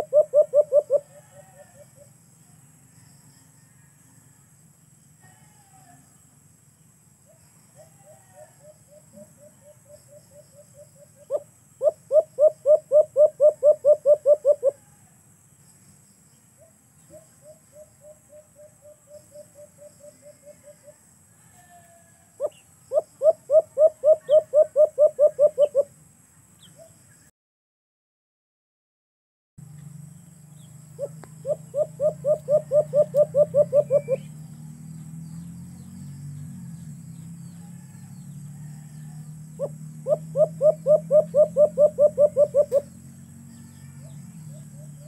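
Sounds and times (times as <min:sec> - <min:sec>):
dove cooing rapidly: 0:00.0 - 0:01.8, 0:07.9 - 0:14.8, 0:22.4 - 0:25.9, 0:31.0 - 0:34.3, 0:39.6 - 0:42.9.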